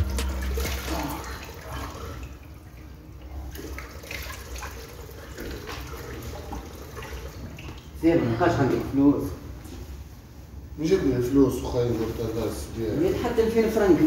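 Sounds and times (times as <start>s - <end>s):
water splashing: 0.0s - 8.0s.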